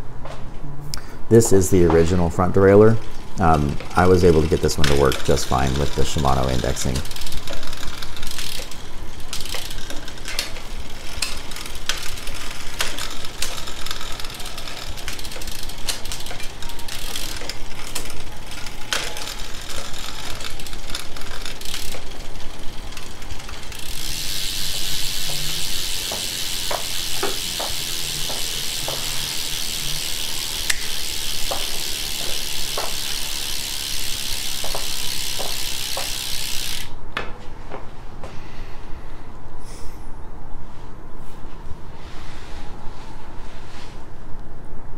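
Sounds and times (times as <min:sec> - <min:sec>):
bicycle chain clicking: 0:01.4 - 0:37.0
freewheel ratcheting buzz: 0:01.8 - 0:37.0.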